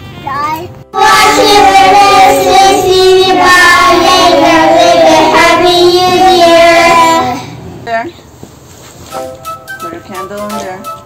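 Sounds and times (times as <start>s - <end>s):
children singing in unison: 1.0s - 7.4s.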